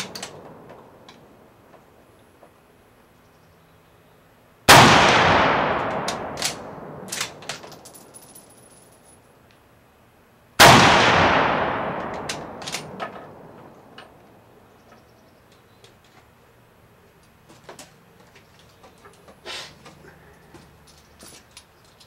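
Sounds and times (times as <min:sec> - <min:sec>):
rifle shots with echo: 0:04.7 - 0:07.6, 0:10.6 - 0:14.0
rifle bolt clacks: 0:05.7 - 0:08.0, 0:11.9 - 0:14.2.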